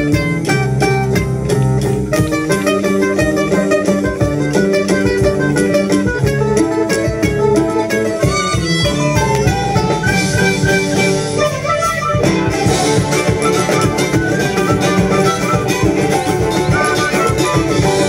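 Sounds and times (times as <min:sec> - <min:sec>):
violins and acoustic guitars playing: 0:00.0 - 0:18.0.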